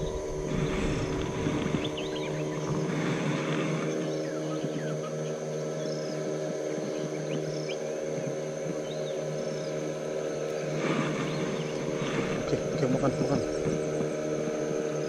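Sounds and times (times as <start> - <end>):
low tonal drone: 0.0 - 15.0
bird chirps: 1.7 - 2.8.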